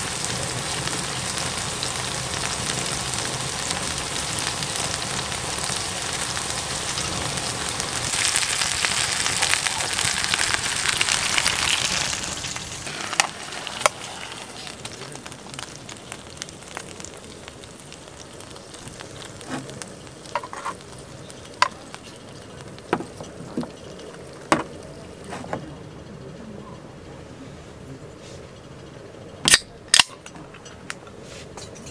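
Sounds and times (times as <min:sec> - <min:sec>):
steak sizzling in a frying pan: 0:00.0 - 0:25.2.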